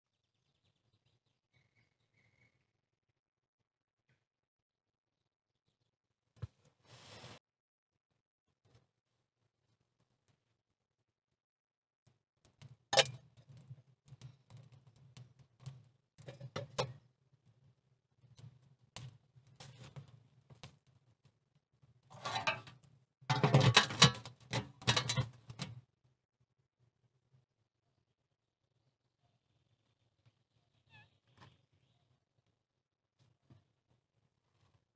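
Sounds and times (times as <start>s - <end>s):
metallic scraping and rattling: 22.1s - 25.7s
clicks and knocks: 22.2s - 25.8s.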